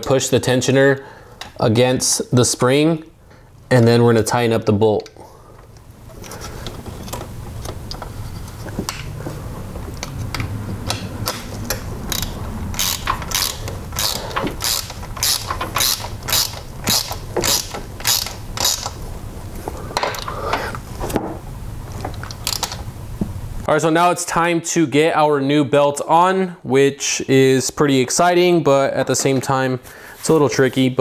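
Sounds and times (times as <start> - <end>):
ratchet wrench clicking: 10.2 - 19.0, 22.3 - 22.8.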